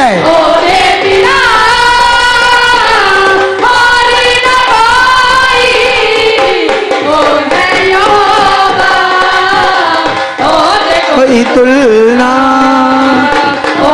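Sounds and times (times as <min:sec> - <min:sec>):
instrumental backing: 0:00.0 - 0:13.9
person singing: 0:10.4 - 0:13.9.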